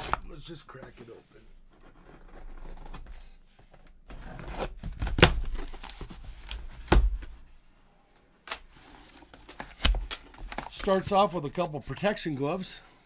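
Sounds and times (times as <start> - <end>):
packing tape ripping: 0.0 - 0.2, 9.4 - 11.0
cardboard flaps rustling: 4.1 - 7.5, 9.2 - 12.0.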